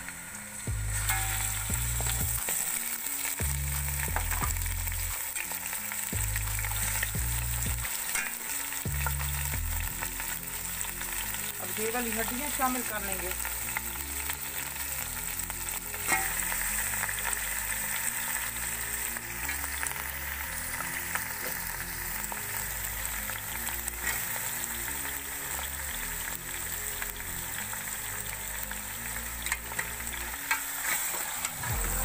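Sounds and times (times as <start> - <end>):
meat sizzling in hot oil: 0.0 - 32.0
ladle scraping a pot: 16.0 - 16.4.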